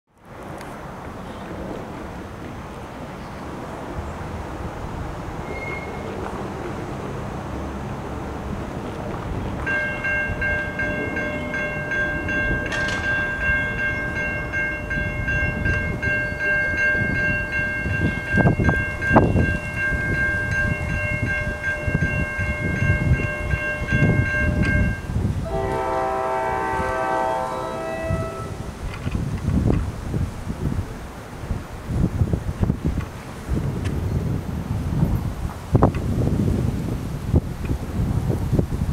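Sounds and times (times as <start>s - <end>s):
railroad crossing bell ringing: 9.5s - 28.8s
train horn chord: 20.1s - 28.7s.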